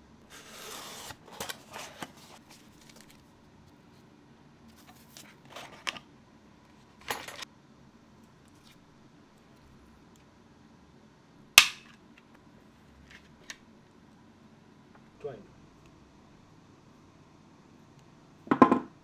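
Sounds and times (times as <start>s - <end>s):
cardboard sliding rustle: 0.3s - 3.2s.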